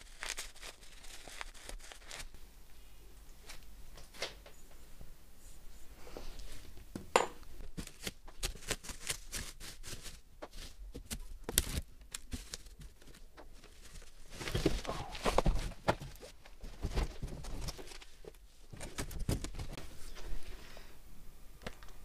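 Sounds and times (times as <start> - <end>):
plastic packaging crinkling: 0.0 - 2.3, 7.8 - 19.8.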